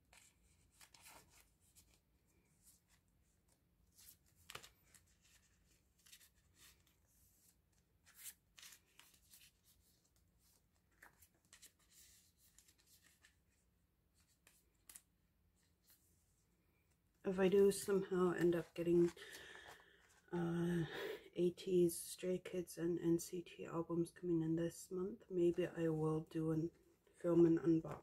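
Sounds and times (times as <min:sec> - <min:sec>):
plastic card sleeves rustling: 0:00.0 - 0:16.1, 0:17.4 - 0:20.3.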